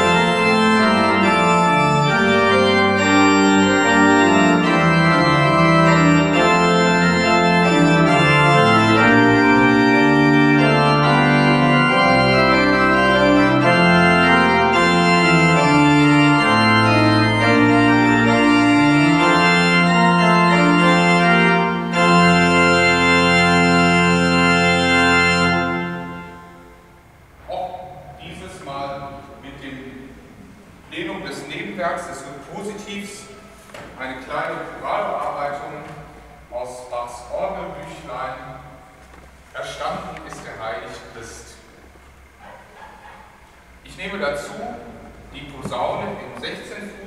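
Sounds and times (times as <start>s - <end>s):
pipe organ playing chords: 0.0s - 42.8s, 43.6s - 47.0s.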